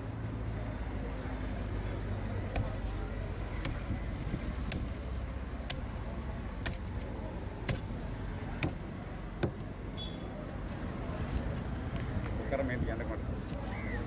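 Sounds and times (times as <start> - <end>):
street traffic rumble: 0.0 - 14.0
knife chopping on wooden block: 8.6 - 8.8.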